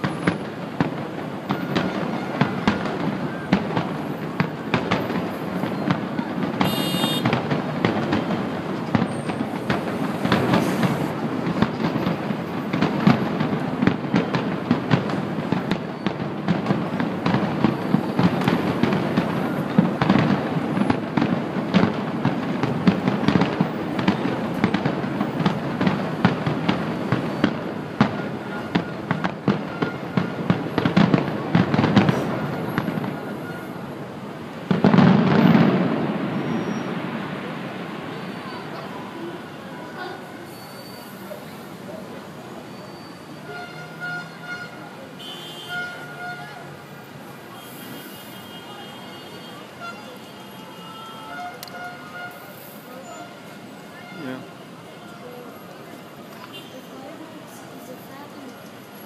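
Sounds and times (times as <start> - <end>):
fireworks crackling and booming: 0.0 - 59.0
high firework whistle: 6.6 - 7.4, 36.2 - 37.1, 40.4 - 41.5, 42.6 - 46.6, 47.5 - 48.8.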